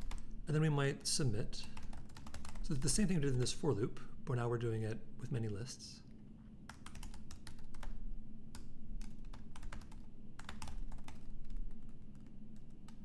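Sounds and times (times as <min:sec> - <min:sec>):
keyboard typing: 0:00.0 - 0:00.3, 0:01.7 - 0:03.0, 0:06.7 - 0:13.0
faint low hum: 0:00.0 - 0:13.0.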